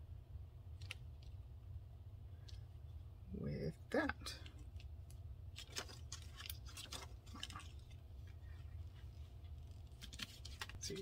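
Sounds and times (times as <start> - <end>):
steady low hum: 0.0 - 11.0
plastic sheet crinkling: 5.5 - 11.0.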